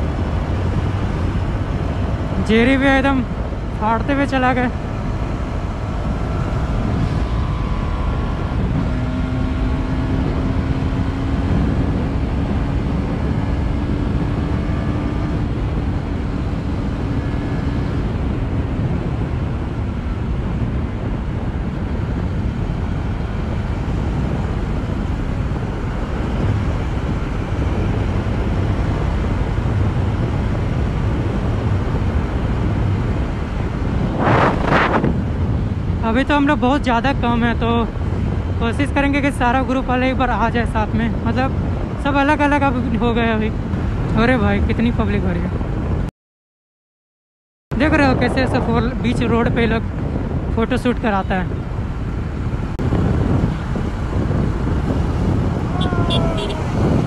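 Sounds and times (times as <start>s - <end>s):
wind rush on microphone: 0.0s - 46.1s, 47.7s - 57.0s
motorcycle engine running: 52.8s - 57.0s.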